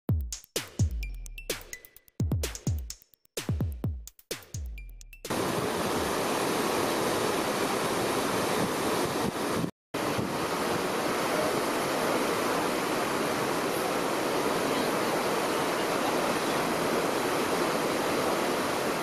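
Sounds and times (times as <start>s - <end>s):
rushing water: 5.3s - 19.0s.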